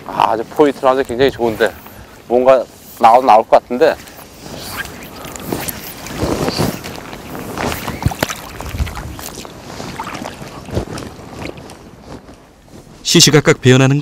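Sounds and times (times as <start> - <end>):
wind on microphone: 3.8 - 13.1
river water sloshing around wader: 4.0 - 11.8.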